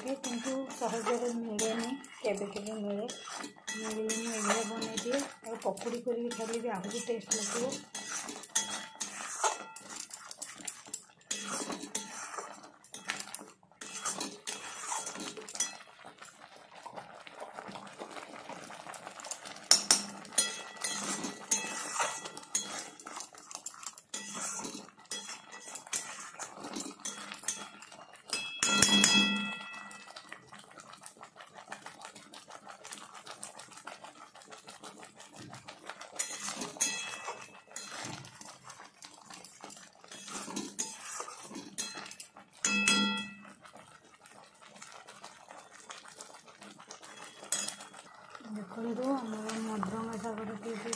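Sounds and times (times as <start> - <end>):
spatula clicking on pan: 0.0 - 12.3, 19.7 - 26.2, 27.0 - 29.9
metal spatula scraping a pan: 0.0 - 16.4, 18.2 - 30.9, 31.6 - 48.4.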